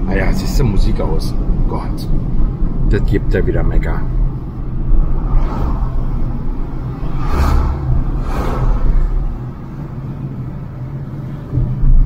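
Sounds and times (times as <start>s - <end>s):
car engine and road noise: 0.0s - 12.0s
brief whooshes: 5.1s - 9.4s.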